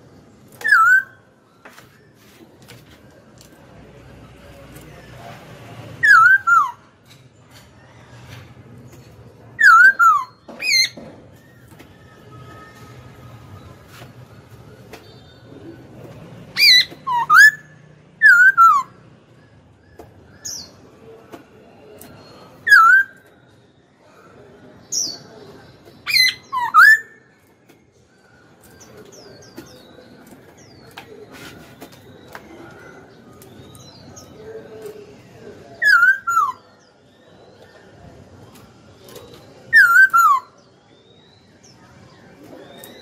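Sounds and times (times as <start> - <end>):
bird singing whistled notes: 0.6 - 2.2, 6.0 - 6.8, 9.6 - 13.0, 16.6 - 20.8, 22.3 - 24.0, 26.0 - 27.4, 35.8 - 37.8, 39.1 - 41.8.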